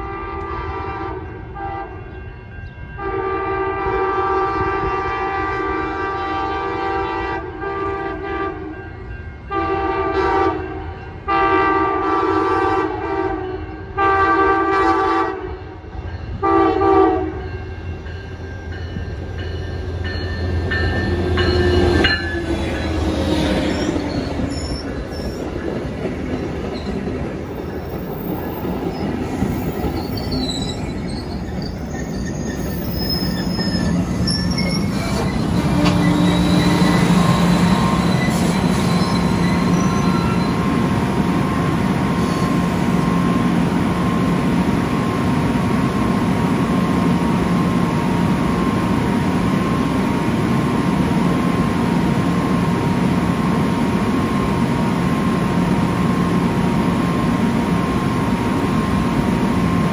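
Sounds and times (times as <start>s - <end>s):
train horn blasts: 0.0s - 18.2s, 35.0s - 40.8s
train rumbling past: 0.0s - 59.9s
wheel squeal: 23.4s - 25.6s, 28.2s - 40.7s, 42.2s - 42.6s.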